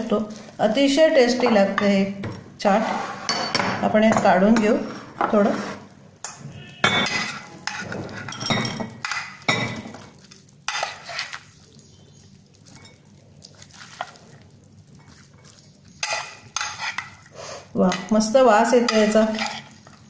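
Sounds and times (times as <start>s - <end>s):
metal spoon scraping glass dishes: 4.2s - 9.8s, 10.7s - 11.4s, 16.0s - 17.2s, 18.8s - 19.8s.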